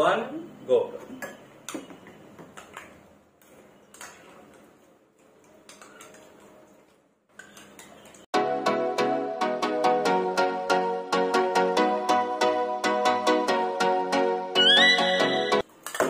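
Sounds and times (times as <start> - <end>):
spoons clicking against bowls: 5.3 - 6.6, 7.3 - 8.3
loud background music: 8.4 - 15.6.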